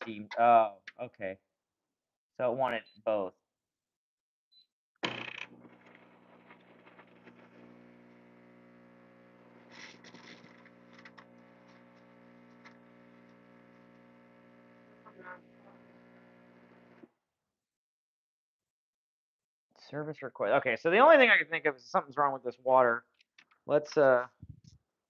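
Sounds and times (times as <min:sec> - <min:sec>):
water pump humming: 0:05.5 - 0:17.0.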